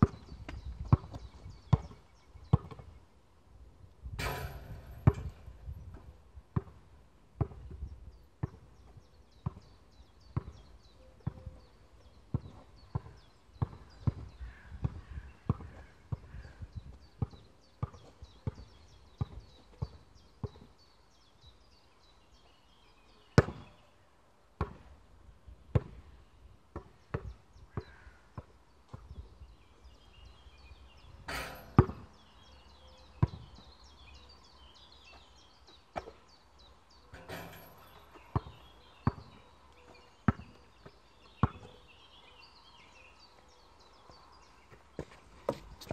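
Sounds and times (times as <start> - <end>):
basketball bouncing on hard court: 4.2 - 5.5, 31.3 - 32.1, 37.2 - 39.4, 40.3 - 41.7
sharp bangs: 4.2 - 5.5.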